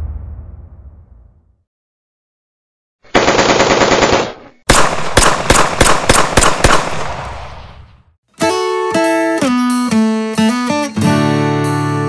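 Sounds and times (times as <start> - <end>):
automatic gunfire burst: 3.1 - 7.6
sharp shots with ringing: 3.2 - 7.9.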